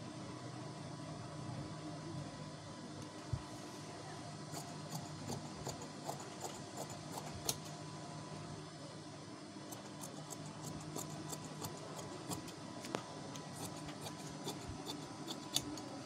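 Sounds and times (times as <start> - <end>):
scissors snipping fabric: 4.5 - 7.7, 9.7 - 12.6, 13.4 - 16.0.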